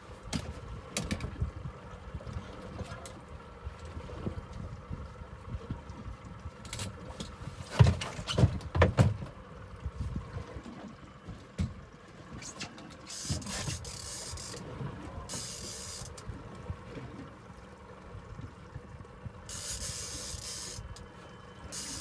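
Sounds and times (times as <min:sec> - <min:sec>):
knocks and clunks on boat deck: 0:00.1 - 0:17.5.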